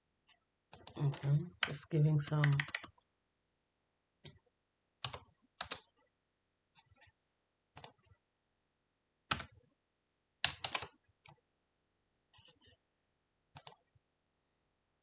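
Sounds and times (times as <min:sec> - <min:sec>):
computer keyboard typing: 0:00.7 - 0:03.0, 0:05.0 - 0:06.0, 0:07.8 - 0:08.1, 0:09.3 - 0:09.5, 0:10.4 - 0:10.9, 0:13.6 - 0:13.8.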